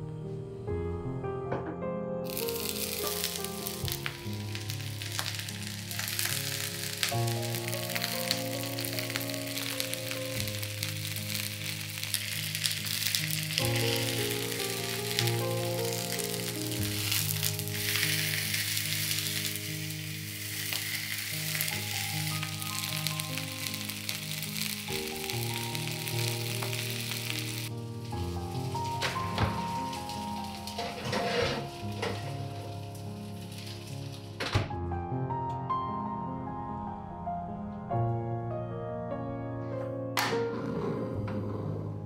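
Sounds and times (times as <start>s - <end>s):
background music: 0.0s - 42.0s
food sizzling in hot oil: 2.3s - 34.4s.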